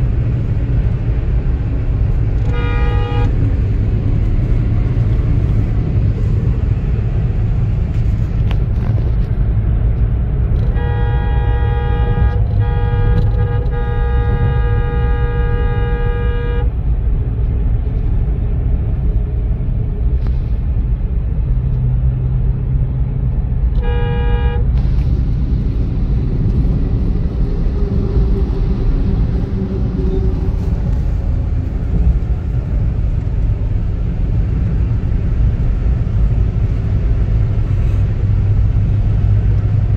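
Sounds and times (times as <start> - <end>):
car engine and tyres rumbling: 0.0 - 39.9
vehicle horn: 2.4 - 3.5, 10.6 - 16.8, 23.8 - 24.9.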